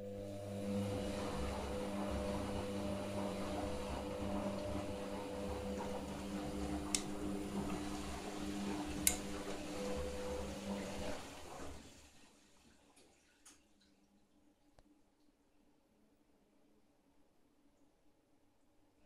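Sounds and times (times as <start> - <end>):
motor whining hum: 0.0 - 11.8
washing machine drum turning: 0.0 - 11.8.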